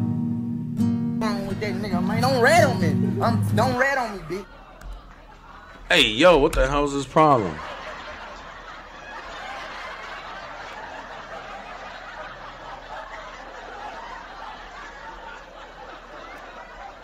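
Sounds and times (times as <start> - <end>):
muffled laughter: 2.6 - 5.9, 7.3 - 17.0.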